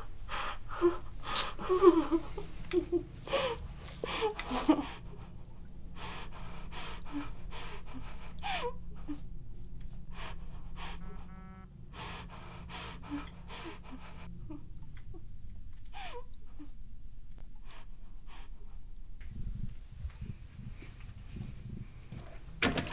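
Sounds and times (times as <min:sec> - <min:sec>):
woman whimpering: 0:00.0 - 0:05.4, 0:06.0 - 0:09.2, 0:10.1 - 0:15.2, 0:15.9 - 0:16.8
woman gasping and sobbing: 0:00.0 - 0:15.2, 0:15.9 - 0:16.8
short buzz: 0:10.8 - 0:12.6.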